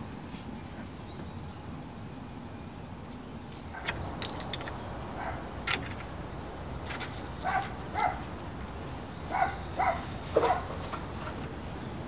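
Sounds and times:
sharp crisp clicks: 3.5 - 4.9, 5.6 - 6.2.

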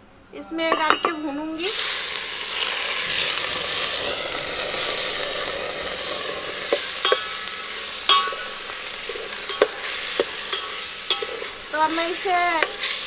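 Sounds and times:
spoon clinking on a metal pot: 0.7 - 1.2, 7.0 - 8.6, 9.4 - 12.0
rice sizzling in a pot: 0.7 - 13.0.

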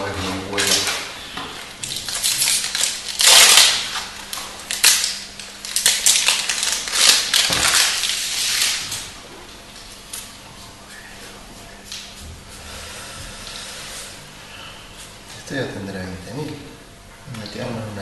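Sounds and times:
foil wrapper crinkling: 0.1 - 9.2.

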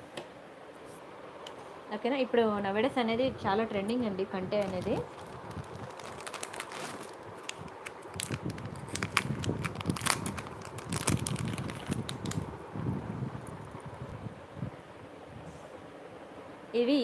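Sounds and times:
plastic packets crinkling: 4.4 - 12.6.

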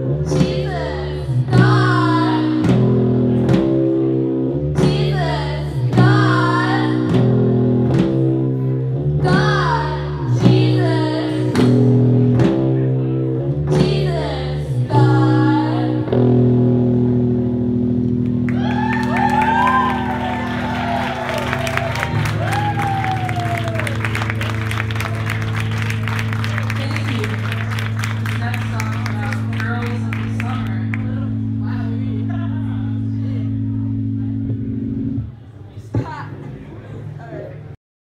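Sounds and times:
live rock band playing: 16.2 - 34.2
audience cheering and shouting: 18.5 - 27.0.

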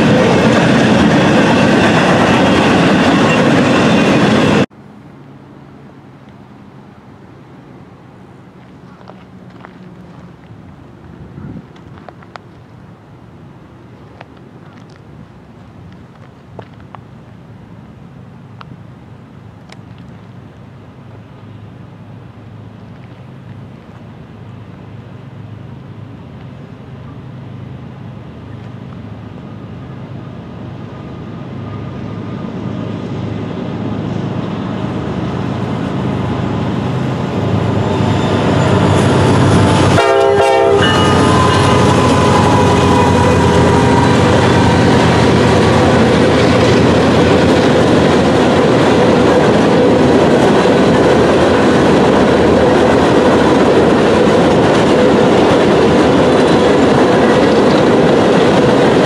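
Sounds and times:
diesel locomotive engine drone: 0.0 - 59.0
freight cars rumbling: 0.0 - 59.0
train horn blast: 37.9 - 44.9.

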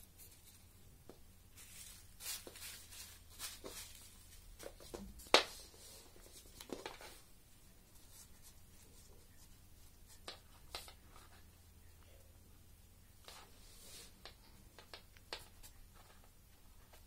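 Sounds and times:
plastic rustling and crinkling: 0.2 - 11.4.

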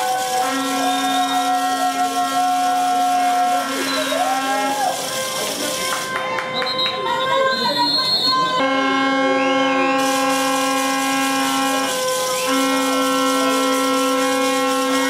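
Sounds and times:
long steady horn blasts: 0.0 - 15.0.

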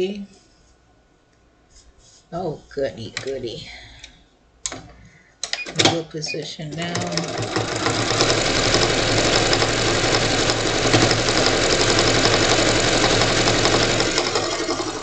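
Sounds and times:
sewing machine stitching: 6.7 - 15.0.

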